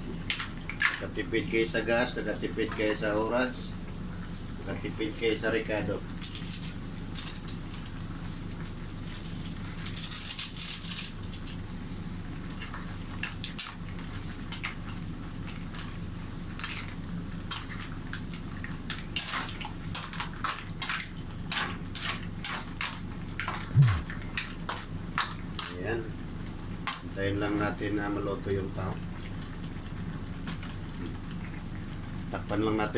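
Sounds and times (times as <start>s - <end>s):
low steady hum: 23.6s - 24.2s.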